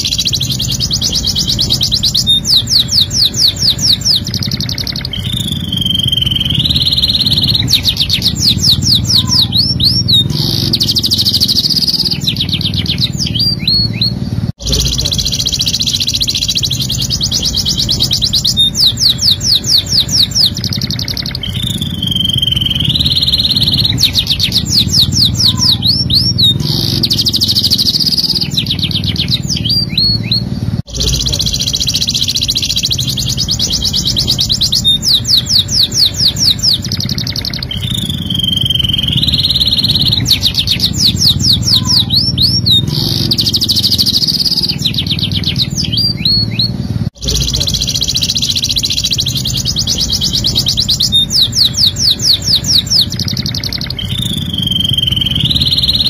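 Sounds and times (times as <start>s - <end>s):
canary singing trills: 0.0s - 56.0s
low background hum: 0.0s - 56.0s.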